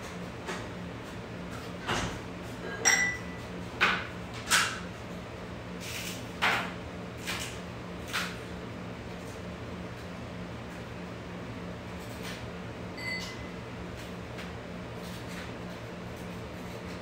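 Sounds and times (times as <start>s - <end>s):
glass clink ringing: 2.7s - 3.4s.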